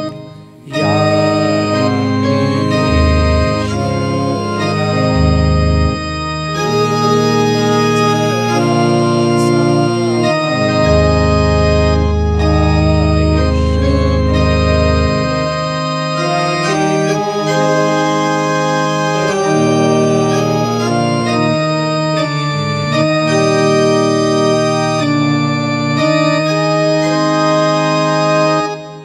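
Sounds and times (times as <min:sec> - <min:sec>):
deep bass organ note: 0:00.0 - 0:29.0
organ chords: 0:00.0 - 0:29.0.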